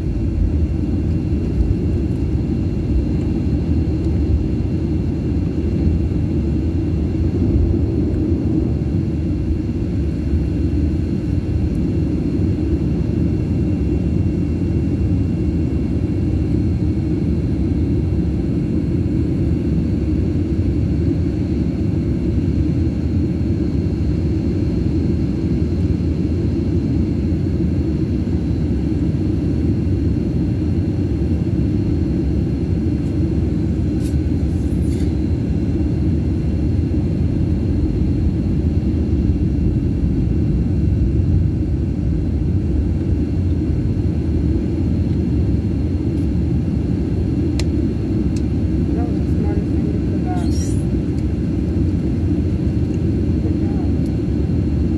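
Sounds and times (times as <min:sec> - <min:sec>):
jet engines and cabin air rumble: 0:00.0 - 0:54.9
faint high whine: 0:28.6 - 0:54.9.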